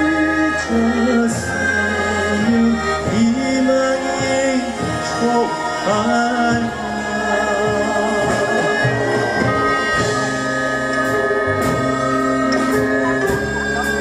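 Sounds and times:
man singing: 0:00.0 - 0:10.0
traditional orchestra long held notes: 0:00.0 - 0:14.0.

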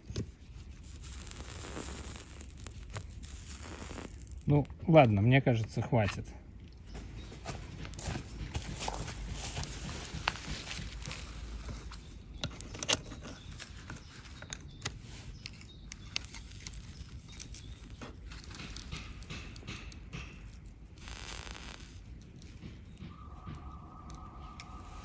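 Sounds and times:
steady low rumble: 0:22.9 - 0:25.0.

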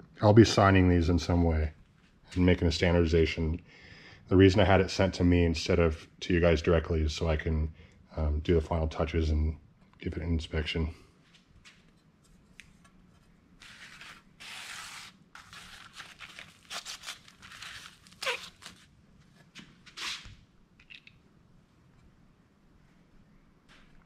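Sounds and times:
plastic sleeve rustling and crinkling: 0:13.6 - 0:18.9.

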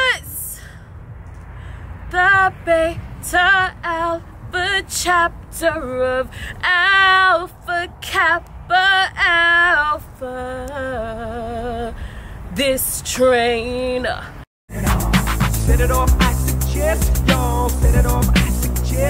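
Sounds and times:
woman singing unaccompanied: 0:00.0 - 0:00.6, 0:02.1 - 0:14.9.

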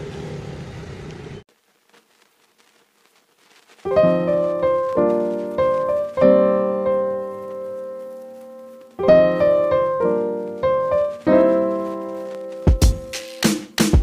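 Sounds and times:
piano chords: 0:03.9 - 0:14.0.

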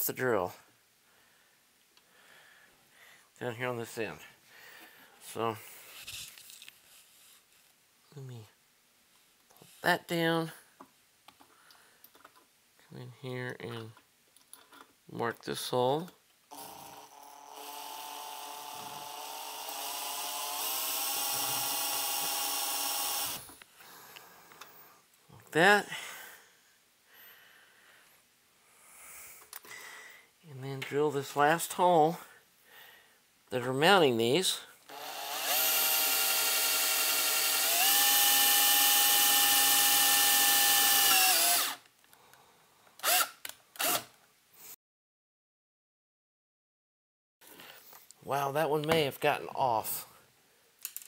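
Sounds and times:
cordless drill drilling metal: 0:16.5 - 0:23.5, 0:34.9 - 0:41.8, 0:43.0 - 0:44.1
short drill whirs: 0:43.0 - 0:44.1.

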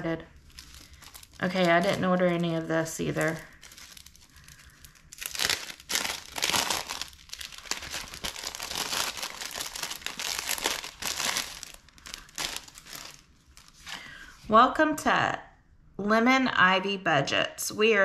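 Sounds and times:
paper and plastic crinkling: 0:00.3 - 0:14.2.

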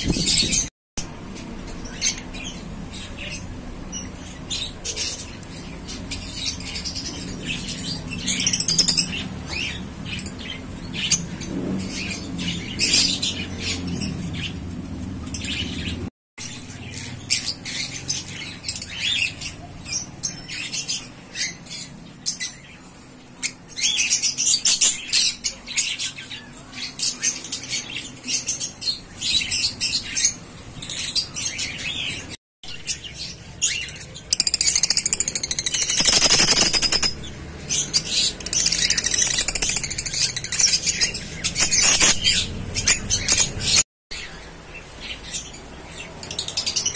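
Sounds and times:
lovebirds chirping: 0:15.3 - 0:46.9.

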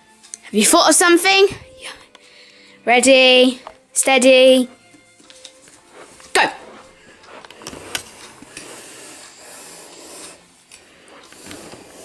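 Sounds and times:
pencil scratching on paper: 0:06.0 - 0:10.4.

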